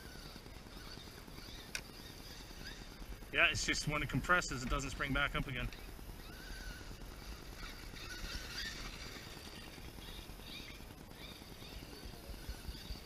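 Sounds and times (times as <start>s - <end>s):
electric motor whining: 0.0s - 13.0s.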